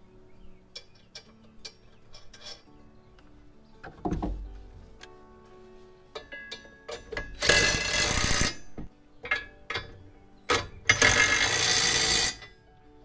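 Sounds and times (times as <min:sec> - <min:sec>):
metal clicks and knocks: 0:00.7 - 0:05.1, 0:06.2 - 0:08.0, 0:08.7 - 0:11.4
impact driver hammering on bolt: 0:07.0 - 0:08.6.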